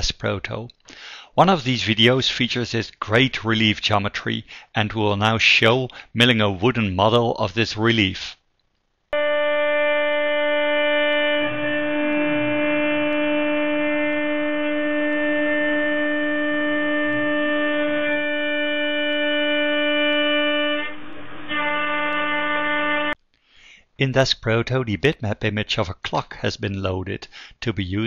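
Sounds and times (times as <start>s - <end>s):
router spindle whining: 9.2s - 23.2s.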